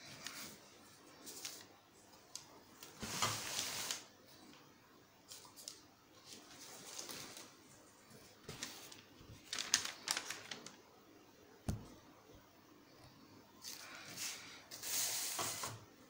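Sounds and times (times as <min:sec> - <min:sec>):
newspaper rustle: 0:05.3 - 0:10.8.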